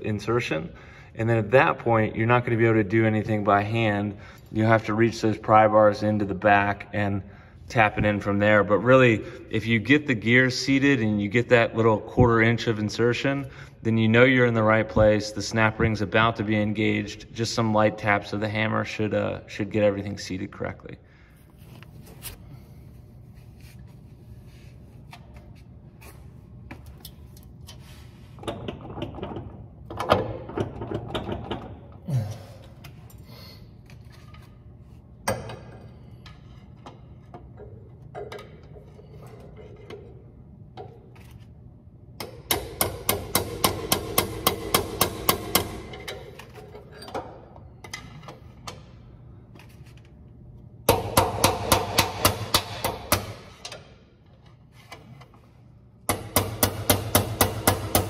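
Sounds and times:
hammer tapping pry bar: 56.1s - 58.0s.

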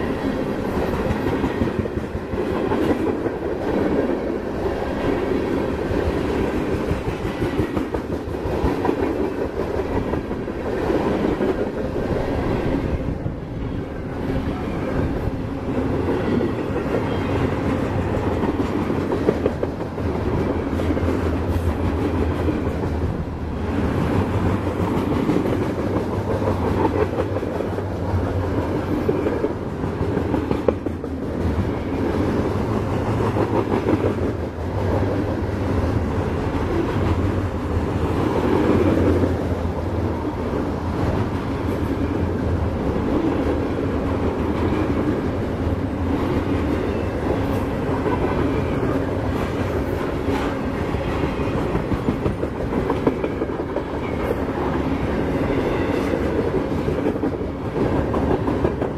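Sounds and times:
freight train rolling past: 0.0s - 58.9s.

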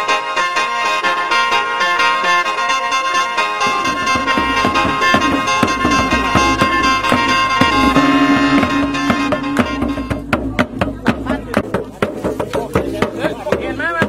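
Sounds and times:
low held note: 2.8s - 10.8s
reed drone: 3.4s - 10.6s
bossed gong strikes: 3.6s - 11.3s
long drum beats: 3.6s - 14.0s.

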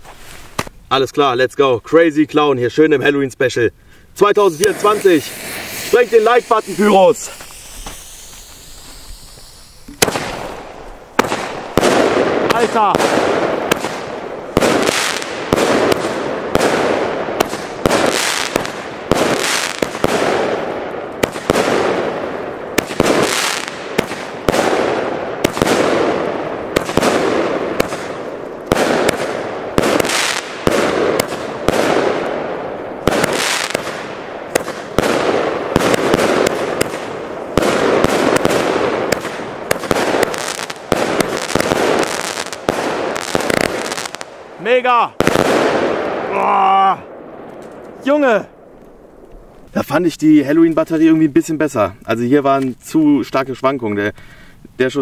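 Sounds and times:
firework bangs with crackling hiss: 0.0s - 0.8s, 4.2s - 46.4s.

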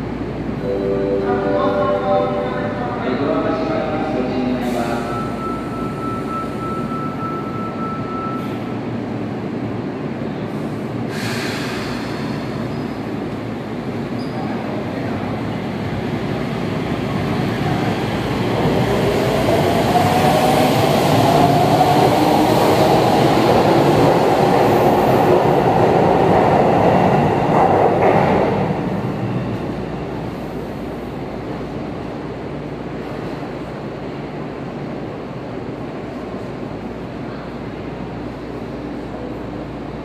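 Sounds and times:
train wheels rumbling on rail: 8.3s - 40.0s.

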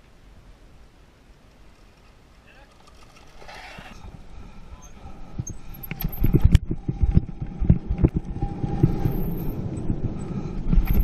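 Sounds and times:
bike rattling over rough ground: 1.5s - 11.0s
wind rumble on microphone: 3.5s - 11.0s.

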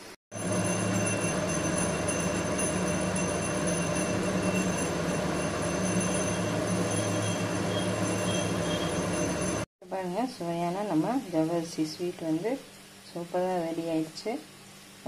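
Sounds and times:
low rumbling hum: 0.4s - 9.7s.

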